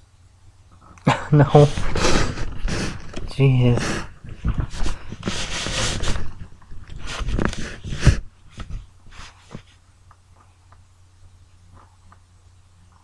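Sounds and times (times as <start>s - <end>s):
faint ticks and rustles: 2.6s - 13.0s.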